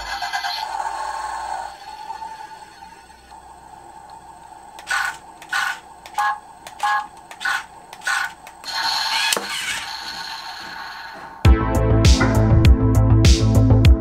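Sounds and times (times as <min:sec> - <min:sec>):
small electric motors whirring: 0:04.8 - 0:10.8.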